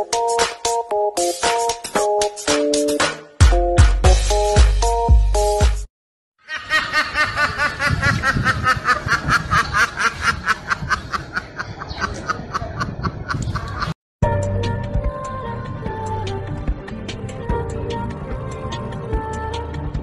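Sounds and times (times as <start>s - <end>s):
background music: 0.0s - 5.9s, 14.2s - 20.0s.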